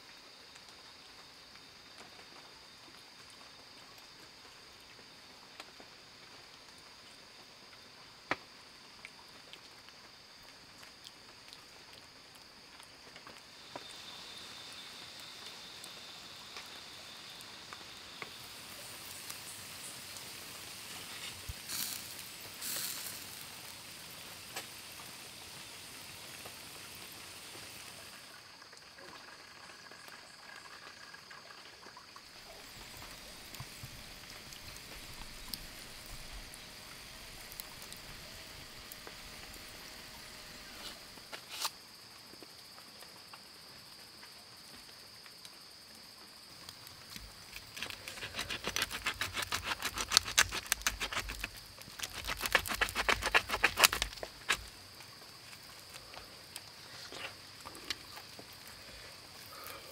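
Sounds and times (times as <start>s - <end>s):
high insect trill: 8.8s - 59.9s
fire crackling: 12.5s - 28.4s, 32.3s - 41.8s, 46.4s - 59.9s.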